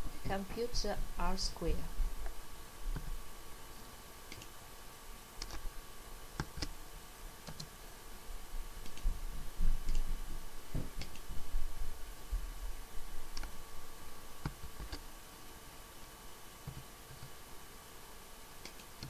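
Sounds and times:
faint low hum: 0.0 - 19.0
keyboard and mouse clicks: 5.4 - 5.6, 6.4 - 6.8, 7.4 - 7.7, 8.8 - 9.1, 9.8 - 10.1, 14.4 - 15.0, 18.6 - 19.0.

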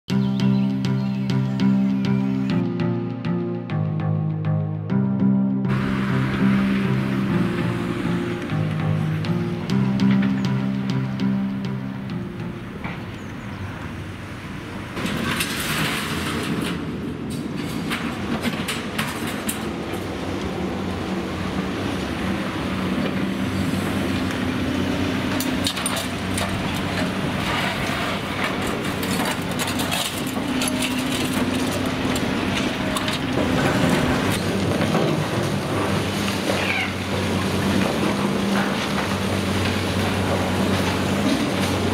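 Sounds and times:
excavator diesel engine running: 0.1 - 41.9
falling debris clattering: 25.6 - 36.6.

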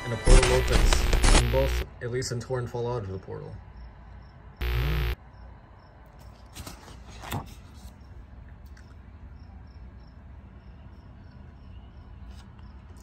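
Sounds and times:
crickets chirping: 3.8 - 6.0, 9.3 - 12.2.

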